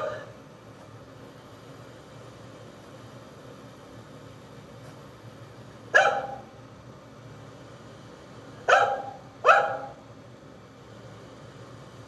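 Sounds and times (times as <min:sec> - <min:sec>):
dog barking: 0:00.0 - 0:00.3, 0:05.9 - 0:06.5, 0:08.7 - 0:10.0.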